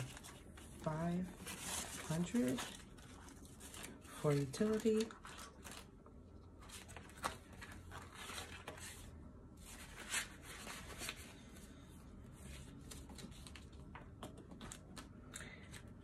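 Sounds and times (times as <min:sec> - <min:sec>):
paper banknotes rustling: 0:00.0 - 0:05.9
plastic pouches crinkling: 0:01.4 - 0:06.0.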